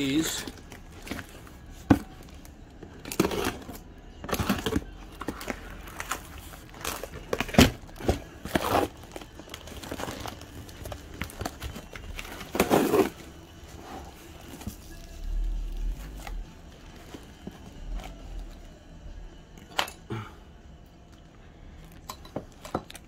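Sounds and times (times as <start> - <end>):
packaging crinkling and tearing: 0.1 - 13.4.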